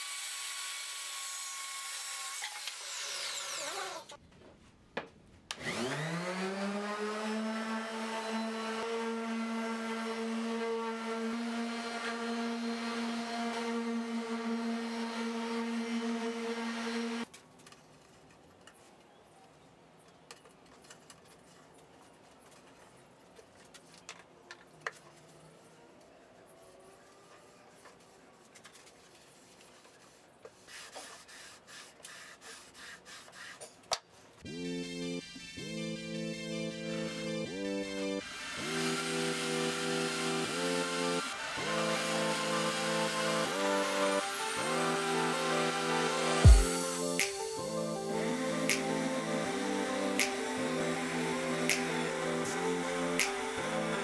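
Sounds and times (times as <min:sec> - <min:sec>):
circular saw cutting and spinning down: 0:05.6 - 0:17.3, 0:34.4 - 0:54.0
palm sander humming: 0:05.6 - 0:17.3, 0:34.4 - 0:54.0.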